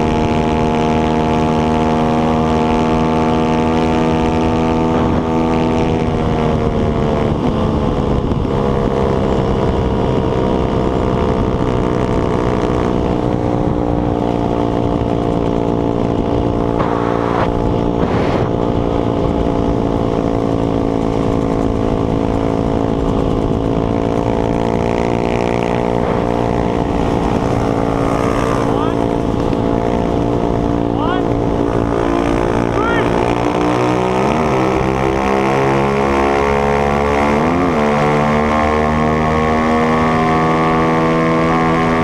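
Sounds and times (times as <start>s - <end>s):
motorbike engine running: 0.0s - 42.0s
short rush of noise: 16.7s - 18.6s.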